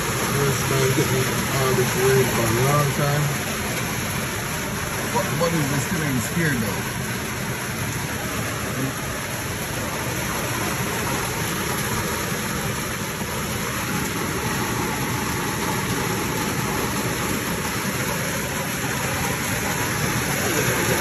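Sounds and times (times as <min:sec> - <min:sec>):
rain falling steadily: 0:00.0 - 0:21.0.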